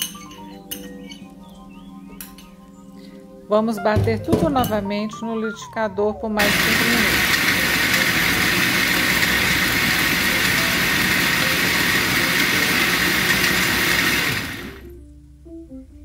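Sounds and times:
blender running: 0:06.4 - 0:14.9.

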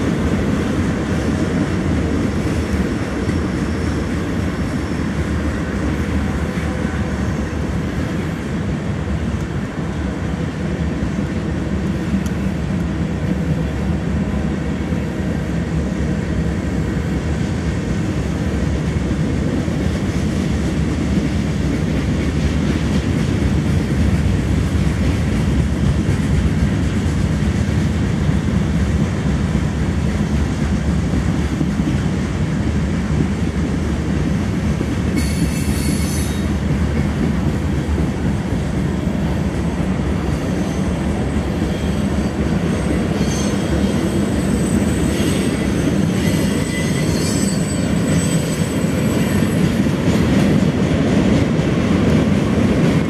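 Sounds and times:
freight train rumbling past: 0:00.0 - 0:53.0
train wheel squeals: 0:35.1 - 0:36.7, 0:40.2 - 0:50.3.

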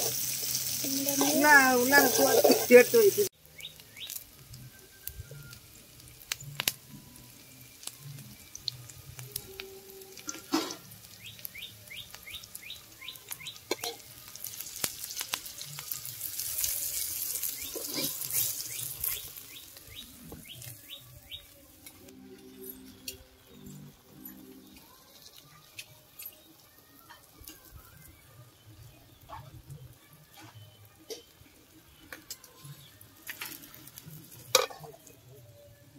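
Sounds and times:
vegetables sizzling in hot oil: 0:00.0 - 0:35.4
metal ladle scraping pan: 0:01.2 - 0:02.9, 0:10.2 - 0:10.9, 0:17.6 - 0:18.6.

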